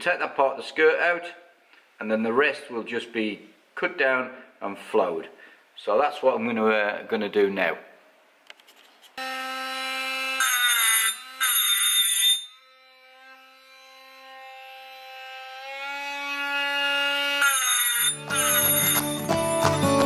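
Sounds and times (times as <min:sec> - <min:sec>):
rotary tool high whine: 0:09.2 - 0:19.1
gritty grinding on metal: 0:09.5 - 0:19.1.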